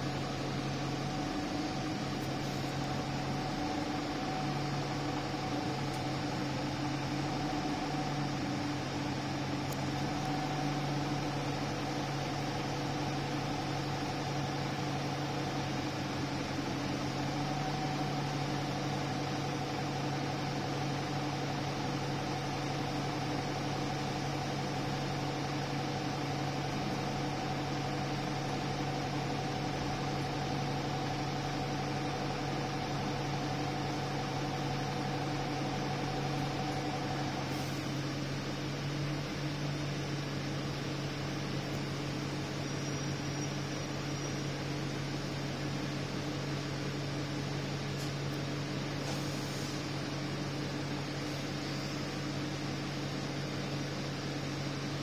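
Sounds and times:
bus diesel engine drone: 0:00.0 - 0:55.0.

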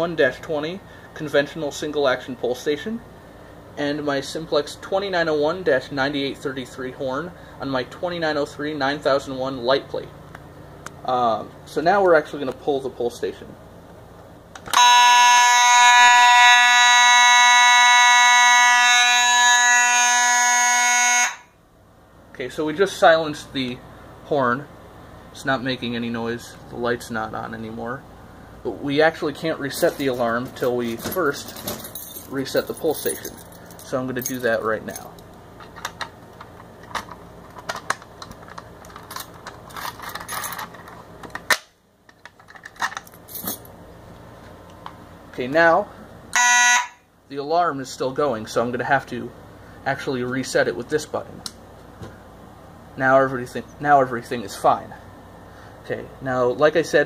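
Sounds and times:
fire alarm horn buzzing: 0:14.7 - 0:21.6, 0:46.3 - 0:47.1
key jingling in lock: 0:29.8 - 0:35.3, 0:38.5 - 0:40.9, 0:42.5 - 0:43.7
small metal clicks and rattles: 0:34.4 - 0:43.6.

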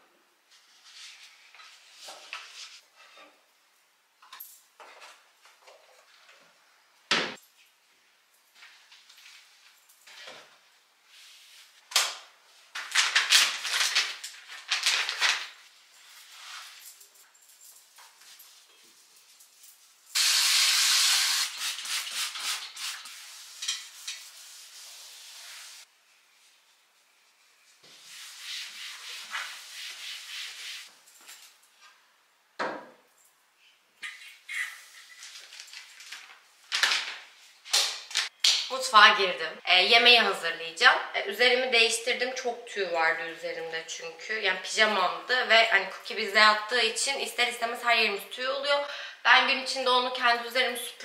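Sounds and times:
rustling of small items: 0:12.5 - 0:20.1, 0:34.7 - 0:38.4.

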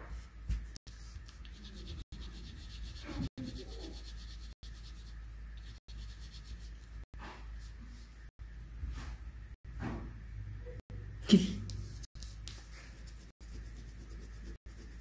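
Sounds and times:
coloured pencil scratching on paper: 0:00.9 - 0:06.8, 0:11.8 - 0:15.0.

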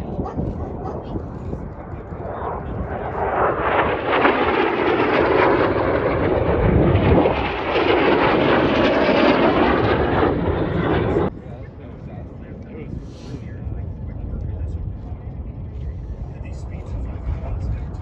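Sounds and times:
racing airplanes roaring past: 0:00.1 - 0:11.3.

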